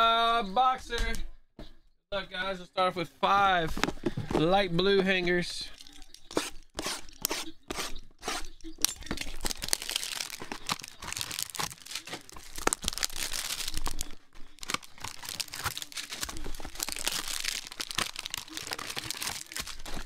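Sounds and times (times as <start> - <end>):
packaging rustling and tearing: 5.8 - 20.0.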